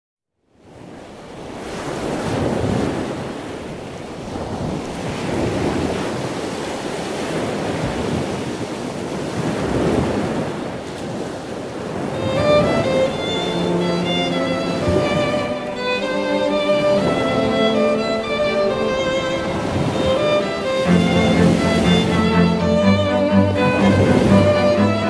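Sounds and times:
waves breaking on beach: 0:00.6 - 0:25.0
wind on microphone: 0:00.8 - 0:25.0
music with sustained notes: 0:12.2 - 0:25.0.

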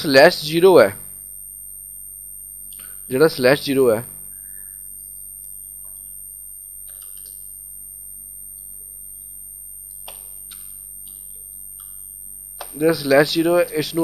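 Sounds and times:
high-pitched electrical whine: 0:00.0 - 0:14.0
low mains hum: 0:00.0 - 0:14.0.

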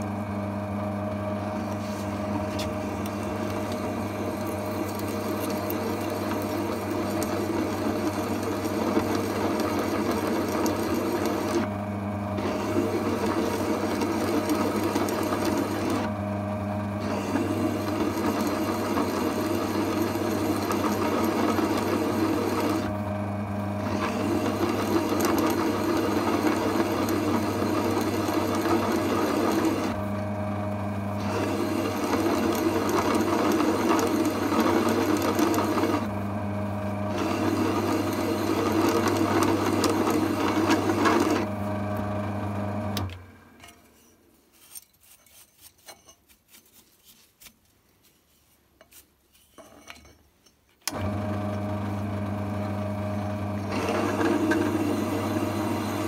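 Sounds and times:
drill press motor hum: 0:00.0 - 0:43.6, 0:50.8 - 0:56.0
metal cutting scrape: 0:43.6 - 0:47.2.

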